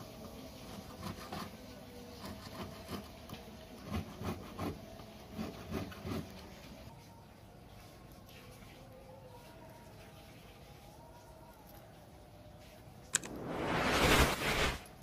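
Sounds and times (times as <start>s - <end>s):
hand file scraping metal: 3.8s - 6.4s.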